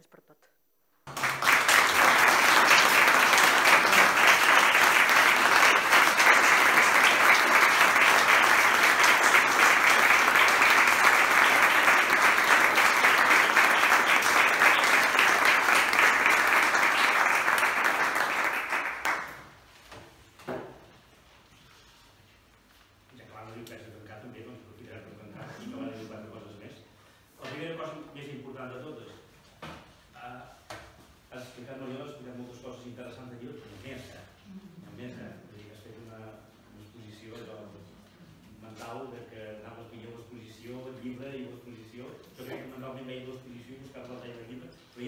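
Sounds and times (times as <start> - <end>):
audience applauding: 1.1 - 19.6.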